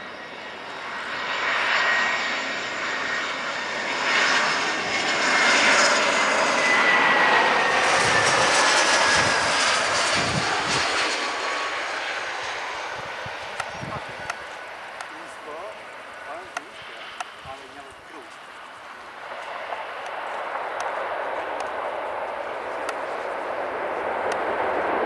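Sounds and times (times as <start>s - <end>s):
jet airliner passing overhead: 0.0s - 25.0s.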